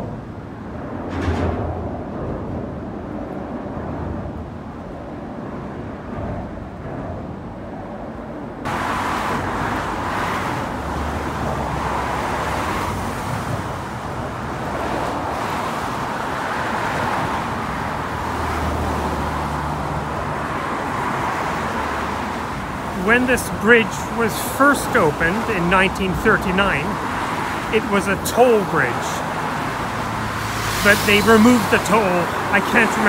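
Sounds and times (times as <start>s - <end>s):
muffled rumble of cars overhead: 0.0s - 33.0s
cars driving past with tyre hiss: 8.6s - 24.3s, 27.0s - 27.9s, 28.6s - 33.0s.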